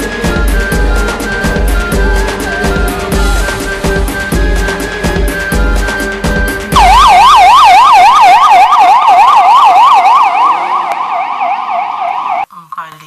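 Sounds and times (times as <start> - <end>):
music with drum beat: 0.0 - 6.8
police siren yelping: 0.0 - 12.5.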